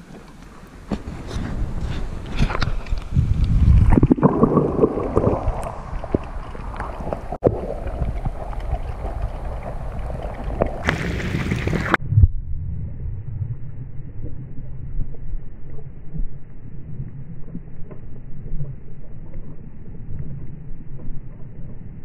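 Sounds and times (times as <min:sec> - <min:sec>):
water splashing: 0:00.0 - 0:12.0
muffled underwater rumble: 0:00.0 - 0:22.0.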